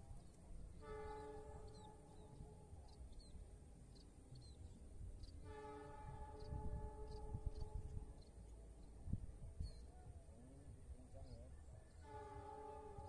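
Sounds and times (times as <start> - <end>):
train horn blasts: 0.8 - 2.1, 5.4 - 8.1, 11.9 - 13.0.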